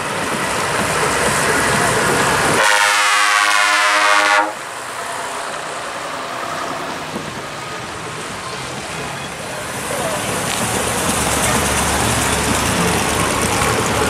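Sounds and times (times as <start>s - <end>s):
tyres on wet road: 0.0s - 14.0s
bus horn long blast: 2.6s - 4.6s
bus engine driving past: 4.5s - 14.0s.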